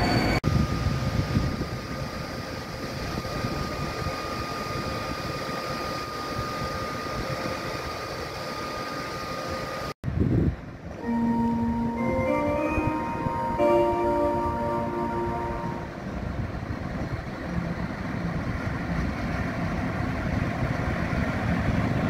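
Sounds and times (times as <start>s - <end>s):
musical notes: 11.0s - 16.1s
locomotive blowers humming: 11.0s - 16.4s.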